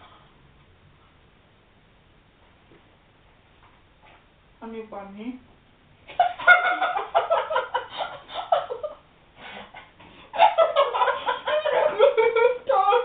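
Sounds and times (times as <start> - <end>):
girls laughing: 6.1 - 9.0, 9.8 - 13.0.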